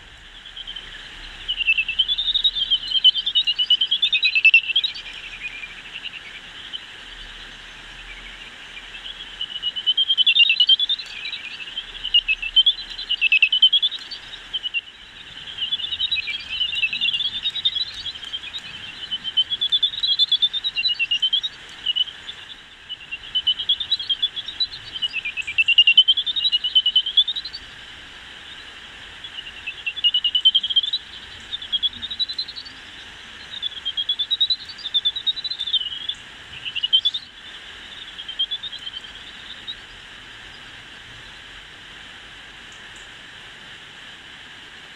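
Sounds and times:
bat echolocation chirps: 0.0s - 41.5s.

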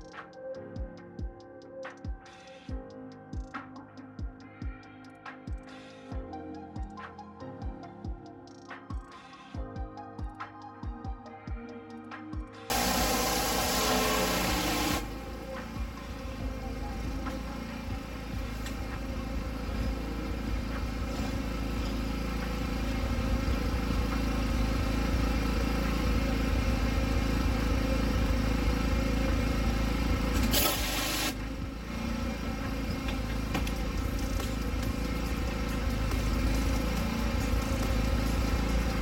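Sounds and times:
surface cleaner spinning on concrete: 12.7s - 16.3s
spray hissing: 12.7s - 16.4s, 30.5s - 31.5s
pressure washer engine: 12.7s - 39.0s.

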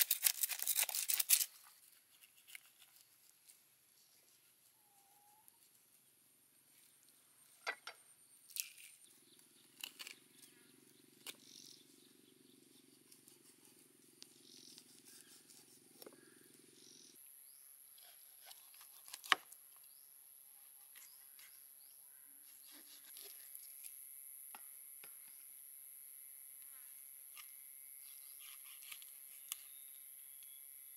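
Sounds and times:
faint steady hum: 1.8s - 30.9s
knife scraping fish scales: 22.4s - 23.9s, 28.0s - 29.6s.

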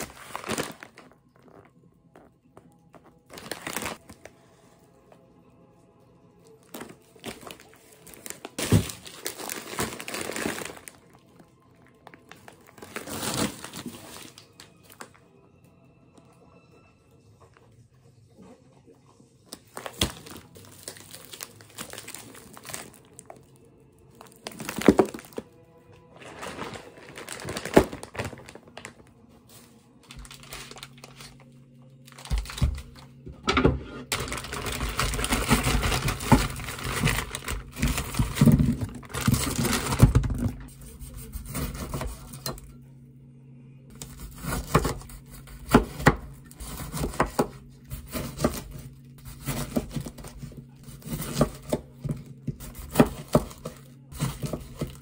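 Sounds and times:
plastic-wrapped packs crinkling: 0.0s - 1.7s, 2.9s - 4.5s, 6.4s - 15.2s, 19.5s - 33.2s, 34.1s - 40.7s
background music: 0.0s - 40.0s.

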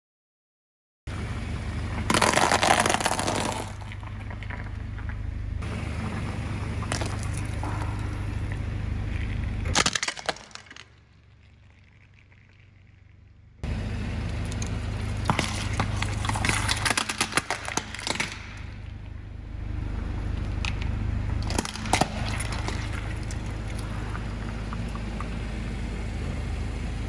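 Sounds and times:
car engine rumbling: 1.1s - 27.0s
tyre crushing objects: 2.0s - 5.0s, 6.8s - 8.0s, 15.1s - 18.8s.

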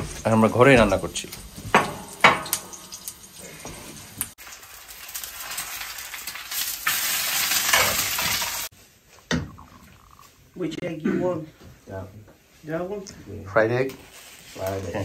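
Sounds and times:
oil sizzling in a frying pan: 0.0s - 8.7s.

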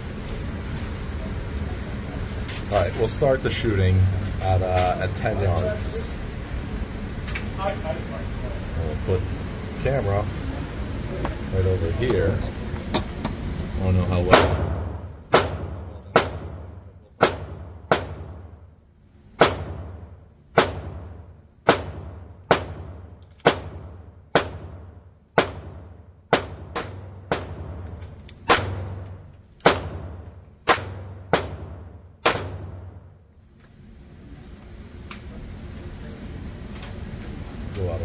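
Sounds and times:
pistol shots: 14.3s - 18.5s, 19.4s - 33.0s.

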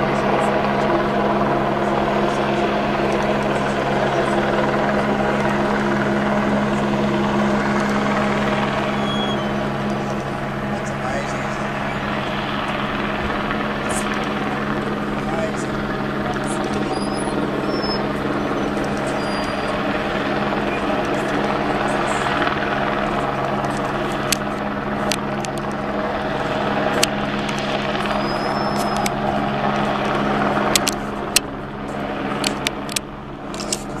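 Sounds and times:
helicopter rotor drone: 0.0s - 34.0s
sharp clicks: 30.7s - 31.5s.

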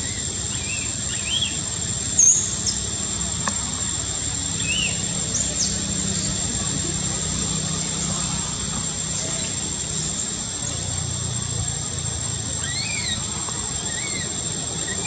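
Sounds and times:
constant low rumble: 0.0s - 15.0s
steady high-pitched drone: 0.0s - 15.0s
baby monkey squealing: 12.6s - 15.0s.

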